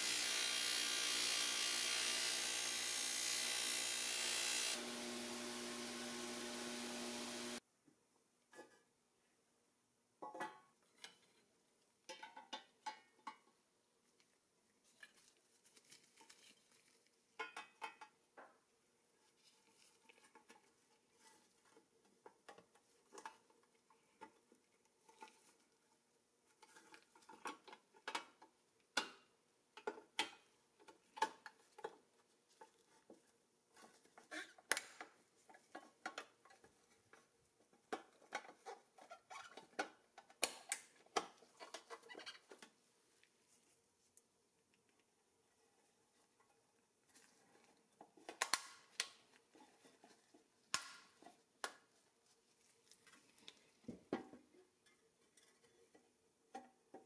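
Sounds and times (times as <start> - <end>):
gloved hands handling parts: 12.1 - 28.6.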